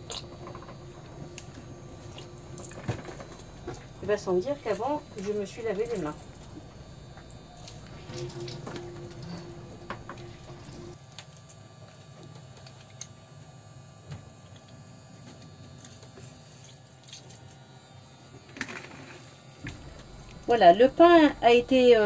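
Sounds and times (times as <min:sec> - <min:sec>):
dripping water: 0:00.0 - 0:11.0
wet squishing bread: 0:00.0 - 0:11.0.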